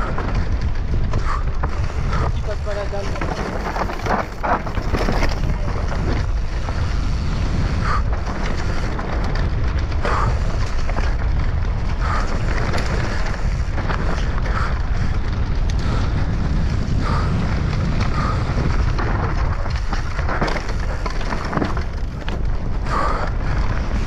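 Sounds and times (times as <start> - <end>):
bike rattling and knocking: 0.0 - 24.0
tyres rolling over dirt and leaves: 0.0 - 24.0
wind rushing over microphone: 0.0 - 24.0.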